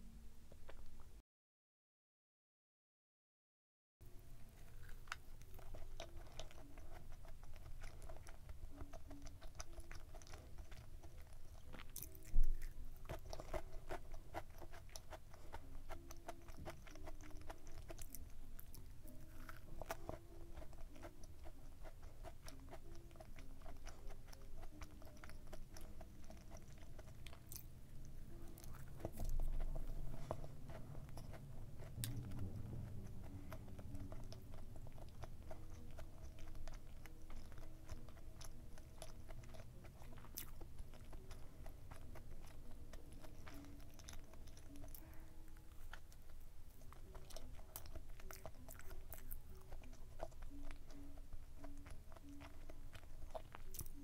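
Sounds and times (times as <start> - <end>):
chewing with wet mouth clicks: 4.6 - 54.0
low sound: 27.0 - 36.8.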